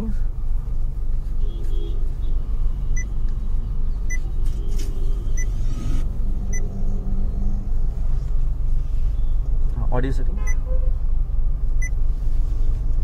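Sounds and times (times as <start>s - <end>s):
high electronic beeps: 4.1s - 6.7s.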